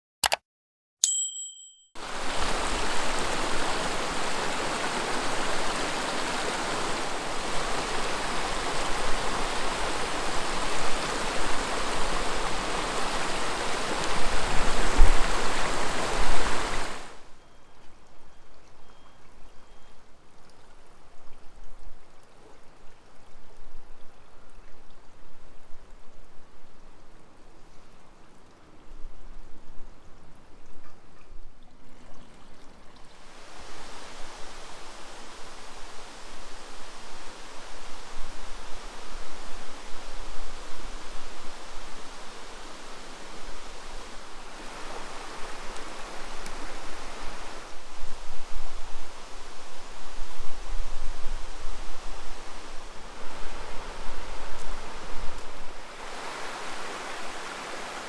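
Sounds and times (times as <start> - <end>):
running water rushing: 2.0 - 58.0
faint watery hiss: 19.8 - 58.0.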